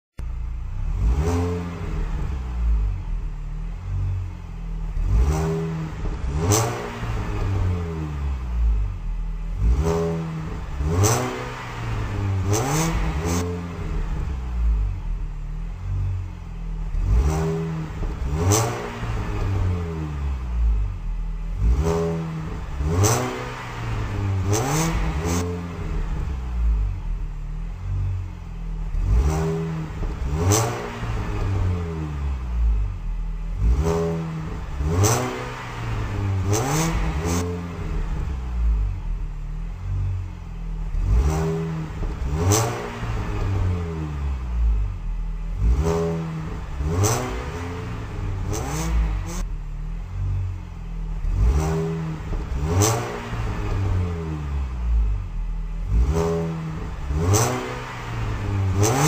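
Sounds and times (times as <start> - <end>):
car engine revving: 0.2 - 59.0.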